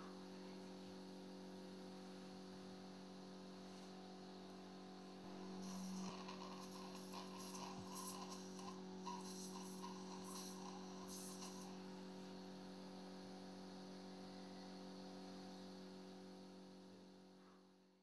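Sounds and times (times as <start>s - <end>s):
faint electrical hum: 0.0s - 18.0s
soft scratchy sounds: 5.3s - 11.8s.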